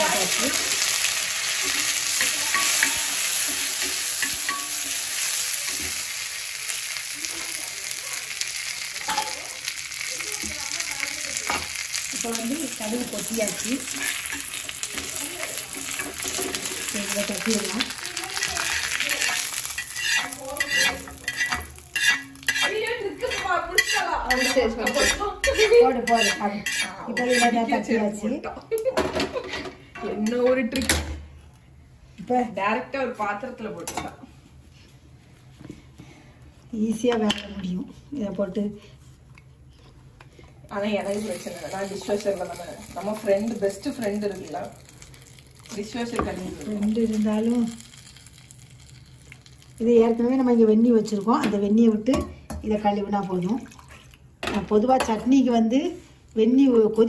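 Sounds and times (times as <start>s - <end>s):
spatula scraping pan: 0.0s - 6.1s, 12.9s - 28.0s
spices sizzling in hot fat: 0.0s - 28.9s, 40.6s - 52.1s
metal ladle scraping iron pan: 13.8s - 14.6s, 18.4s - 27.6s.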